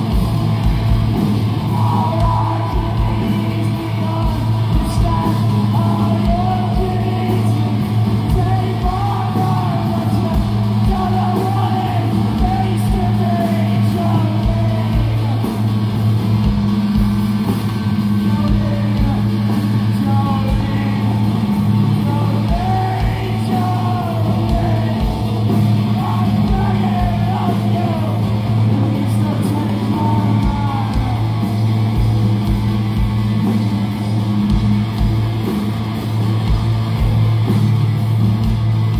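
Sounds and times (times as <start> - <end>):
rock band playing: 0.0 - 38.9
person singing: 1.7 - 15.7, 18.2 - 31.5.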